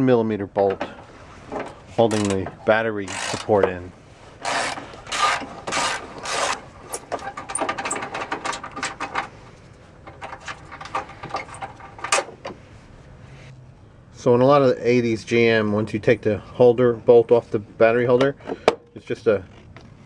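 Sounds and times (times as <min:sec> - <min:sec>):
metal clicks and scrapes: 0:01.5 - 0:03.6, 0:04.4 - 0:12.6.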